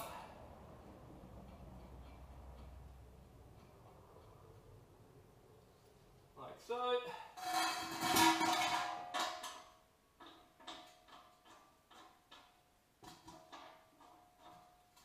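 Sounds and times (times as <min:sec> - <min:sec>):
metallic scrape and clatter: 0:07.3 - 0:15.0.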